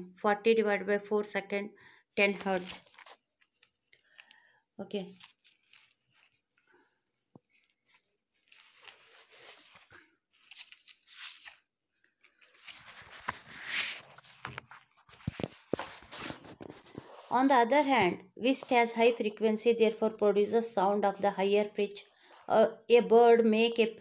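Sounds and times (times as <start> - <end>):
rustling and crackling: 5.1 - 10.8, 12.2 - 17.9.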